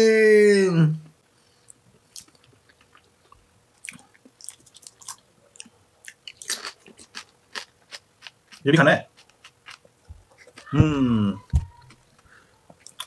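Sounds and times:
crisp shells crunching while chewed: 2.1s - 10.8s.

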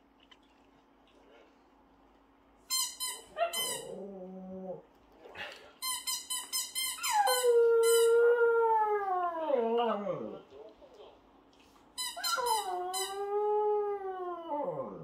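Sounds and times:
dog howling: 12.3s - 15.0s.

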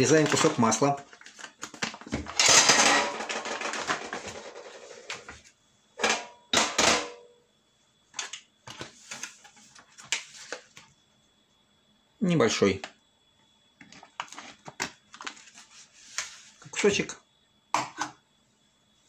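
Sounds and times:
paper wrapper rustling and crackling: 0.0s - 2.1s, 14.0s - 16.4s.

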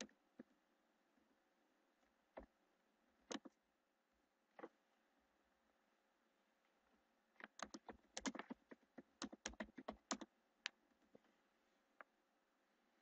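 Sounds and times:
typing on computer keyboard: 7.4s - 8.6s, 9.2s - 10.3s.

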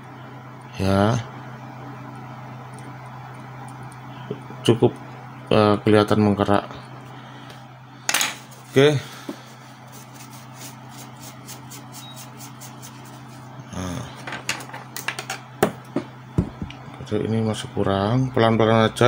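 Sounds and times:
steady low hum: 0.0s - 19.0s
cloth rubbing: 9.5s - 13.5s.

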